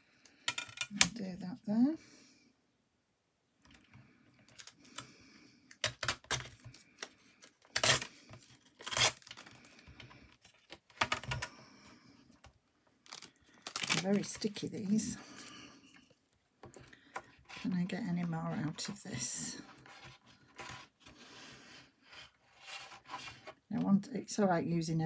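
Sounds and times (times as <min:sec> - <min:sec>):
paper rustling and crackling: 0:13.0 - 0:15.1.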